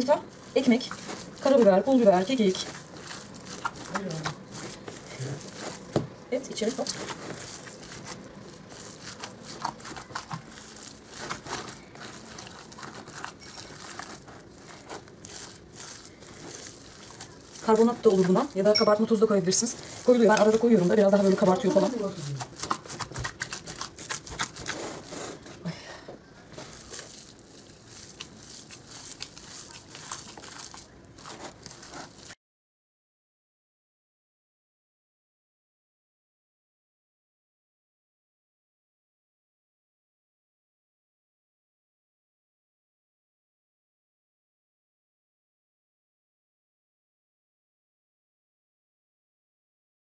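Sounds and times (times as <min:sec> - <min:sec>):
wet squishing of minced meat: 0:00.0 - 0:25.5, 0:26.5 - 0:32.4
disposable gloves crinkling: 0:00.0 - 0:25.6, 0:26.4 - 0:32.4.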